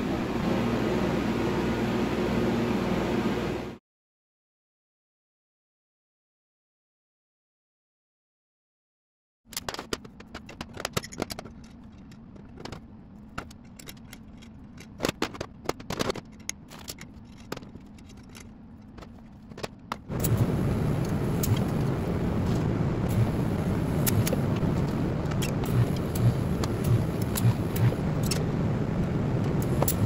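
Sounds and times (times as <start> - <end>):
steel parts clinking and scraping: 9.5 - 20.4
arc welder crackling: 20.1 - 30.0.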